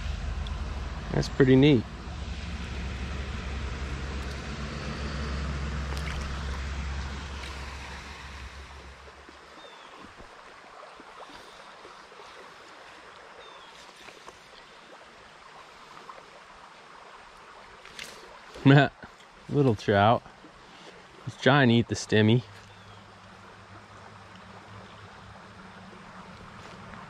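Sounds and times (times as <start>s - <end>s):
low rumble: 0.0s - 9.4s
creek water flowing: 0.0s - 27.0s.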